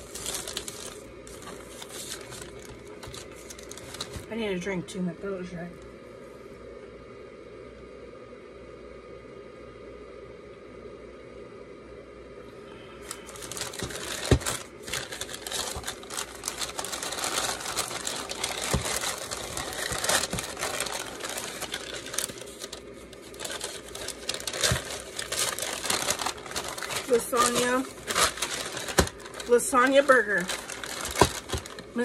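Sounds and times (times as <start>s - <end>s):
paper being unwrapped and crinkled: 0.0s - 4.3s, 13.0s - 32.0s.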